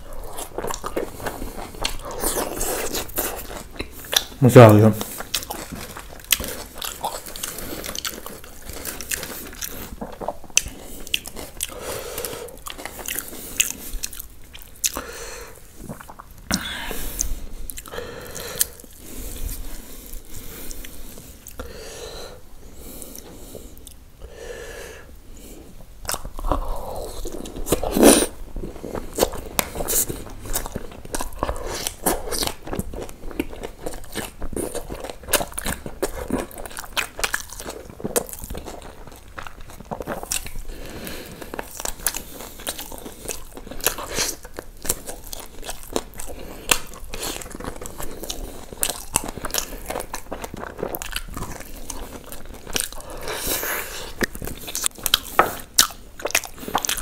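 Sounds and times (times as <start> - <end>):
person biting and chewing: 0.0 - 4.4, 5.0 - 15.1, 26.0 - 57.0.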